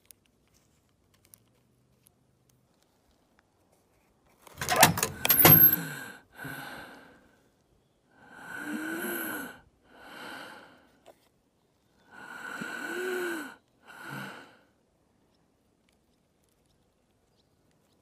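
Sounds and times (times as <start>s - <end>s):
person breathing heavily: 5.8s - 7.3s, 8.2s - 10.9s, 12.1s - 14.7s.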